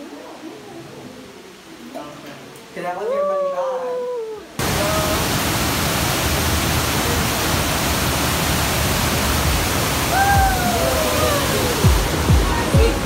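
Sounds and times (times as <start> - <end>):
cave waterfall pouring: 4.6 - 12.9.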